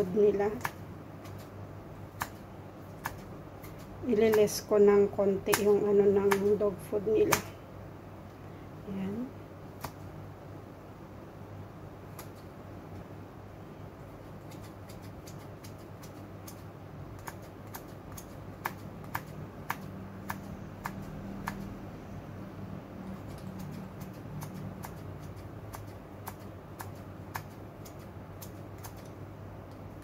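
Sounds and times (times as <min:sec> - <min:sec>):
steady low hum: 0:00.0 - 0:30.0
scissors snipping: 0:02.2 - 0:04.6, 0:05.4 - 0:06.6, 0:09.8 - 0:10.0, 0:12.1 - 0:12.5, 0:14.4 - 0:21.8, 0:23.0 - 0:29.8.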